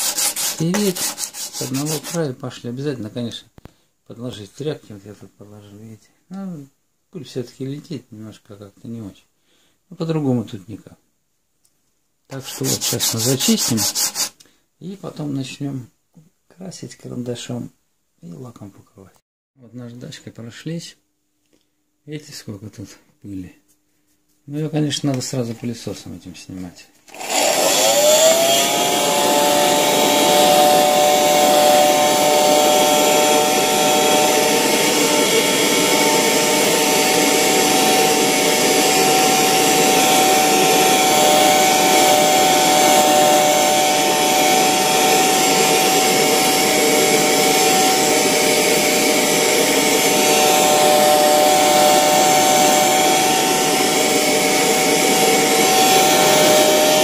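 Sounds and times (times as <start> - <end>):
vacuum cleaner whining: 27.1 - 57.0.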